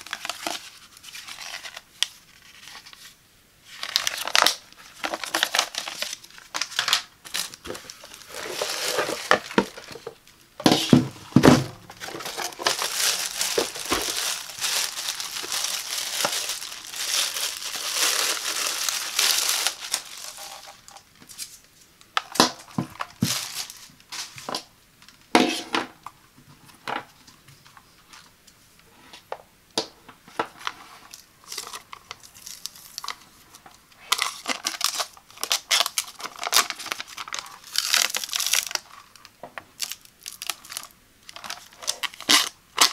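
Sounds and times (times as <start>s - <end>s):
plastic bag crinkling: 3.7s - 21.6s, 22.2s - 24.6s, 30.6s - 33.4s, 34.0s - 42.9s
protective film peeling: 12.0s - 21.4s.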